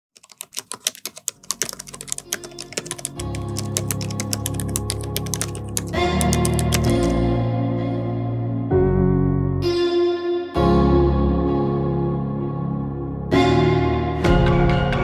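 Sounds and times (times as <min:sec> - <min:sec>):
rapid keyboard typing: 0:00.1 - 0:07.2
background music: 0:00.7 - 0:15.0.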